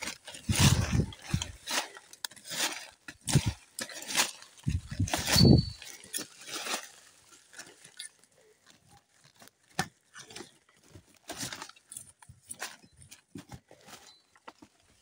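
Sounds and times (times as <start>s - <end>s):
rustles in dry leaf litter: 0.0s - 8.0s.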